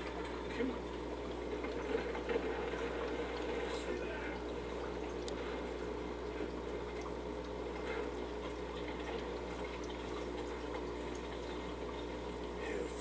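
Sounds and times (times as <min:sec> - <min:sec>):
low even pump hum: 0:00.0 - 0:13.0
trickle of moving water: 0:00.0 - 0:13.0.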